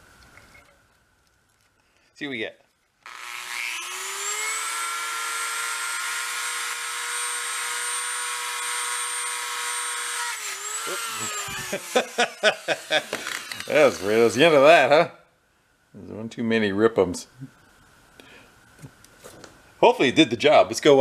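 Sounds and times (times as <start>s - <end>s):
rotary tool whining: 3.0s - 14.4s.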